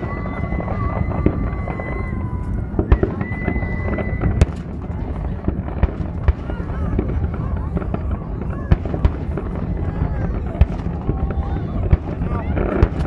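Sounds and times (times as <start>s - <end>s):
high firework whistle: 0.0s - 4.8s
fireworks bangs and crackles: 0.0s - 13.0s.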